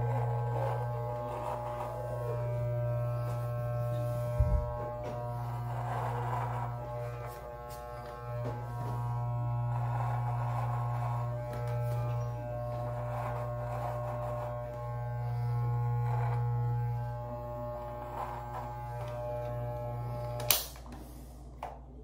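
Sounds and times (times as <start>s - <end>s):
electric beard trimmer buzzing: 0.0s - 20.9s
trimmer switch click: 20.4s - 20.9s.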